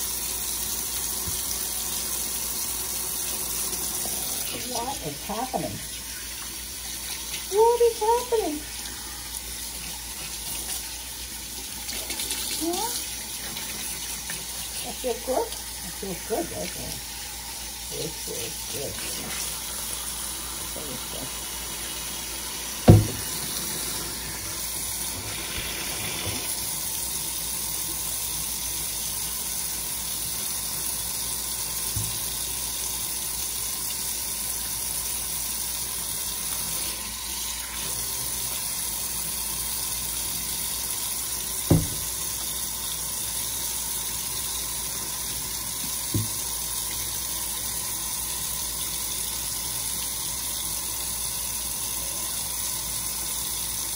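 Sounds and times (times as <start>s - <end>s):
faucet running into metal sink: 0.0s - 53.9s
sharp knocks: 22.9s - 23.3s, 41.7s - 42.1s.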